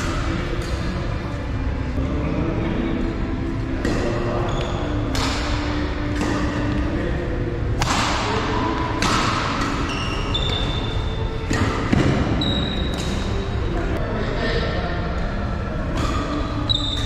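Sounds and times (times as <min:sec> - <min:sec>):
racket hitting shuttlecock: 0:03.8 - 0:07.0, 0:07.7 - 0:13.3
shoes squeaking on court floor: 0:04.4 - 0:05.0, 0:09.8 - 0:11.0.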